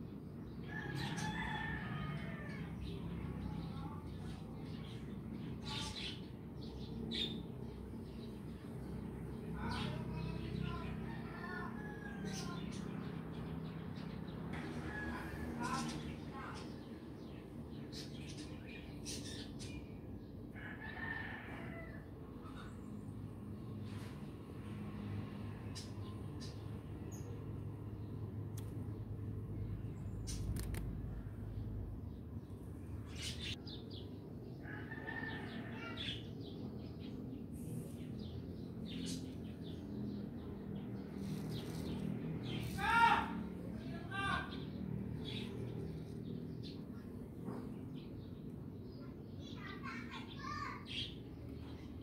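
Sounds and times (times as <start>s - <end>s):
rooster crowing: 0.7s - 2.7s, 34.6s - 36.2s
birds chirping: 25.7s - 52.0s.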